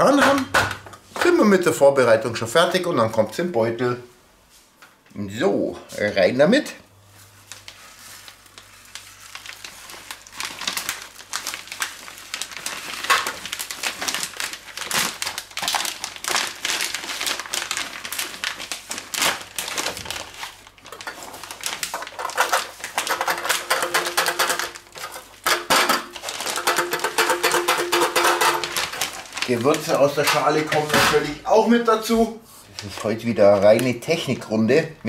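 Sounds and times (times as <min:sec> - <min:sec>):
plastic bag crinkling and rustling: 0:07.0 - 0:34.9.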